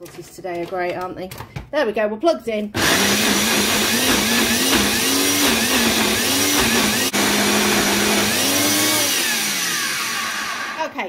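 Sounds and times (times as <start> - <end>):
blender motor churning: 2.8 - 11.0.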